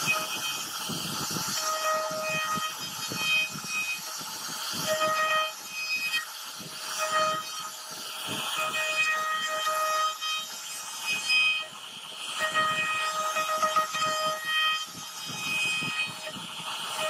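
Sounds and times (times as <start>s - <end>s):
router bit cutting wood: 0.0s - 17.0s
router spindle whine: 0.0s - 17.0s.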